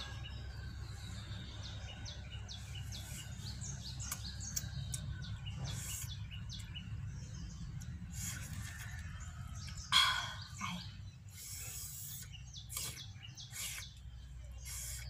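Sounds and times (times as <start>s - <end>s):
birds chirping: 0.0s - 15.0s
person sucking air through teeth: 11.3s - 14.0s.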